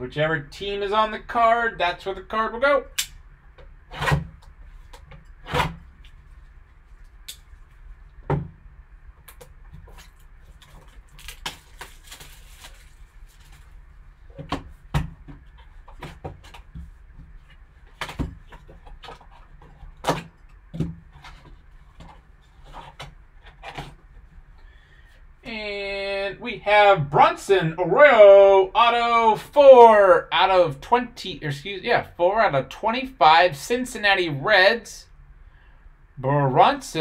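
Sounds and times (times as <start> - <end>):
plastic shrink wrap rustling: 9.8 - 14.4.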